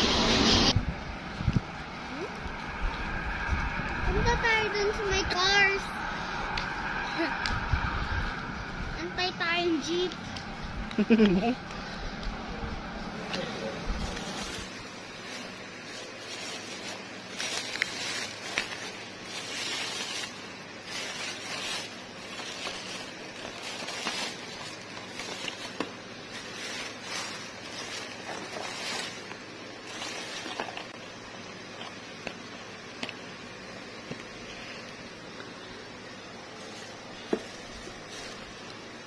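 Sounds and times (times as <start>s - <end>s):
plastic bag crinkling: 14.0s - 31.0s, 36.6s - 38.8s.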